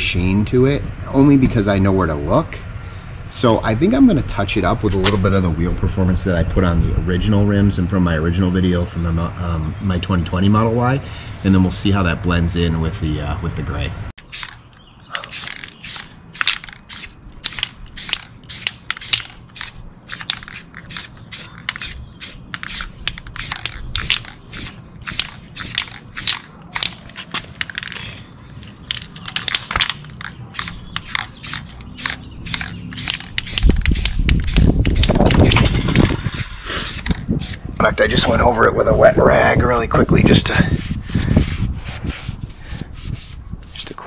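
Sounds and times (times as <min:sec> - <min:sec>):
aerosol paint spray hissing: 0:14.3 - 0:14.6, 0:15.2 - 0:26.5, 0:30.6 - 0:35.6, 0:36.4 - 0:37.6.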